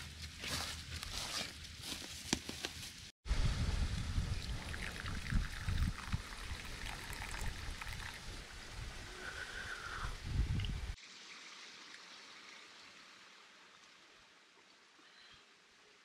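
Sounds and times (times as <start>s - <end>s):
water trickling and running: 4.3s - 9.1s, 10.2s - 15.0s.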